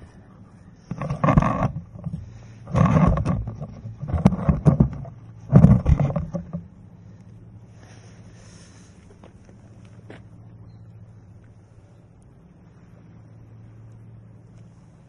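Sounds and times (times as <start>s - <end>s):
rubbing and clicking knocks: 0.9s - 6.7s.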